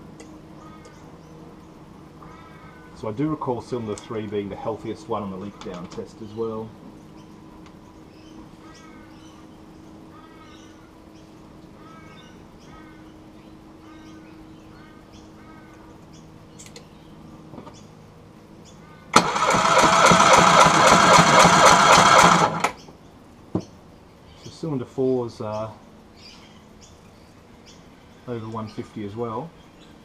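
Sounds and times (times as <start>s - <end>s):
outboard engine cranking: 19.2s - 22.8s.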